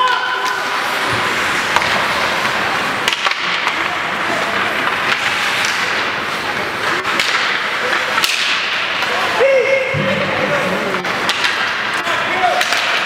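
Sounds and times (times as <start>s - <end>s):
hockey sticks striking puck: 0.0s - 13.0s
ice hockey game hiss: 0.0s - 13.0s.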